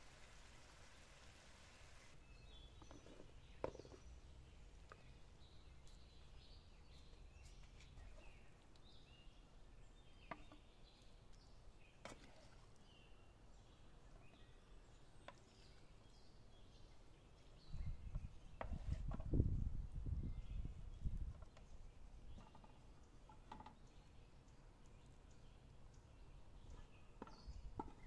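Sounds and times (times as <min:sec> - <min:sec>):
faint bird chirping: 0:02.1 - 0:19.0.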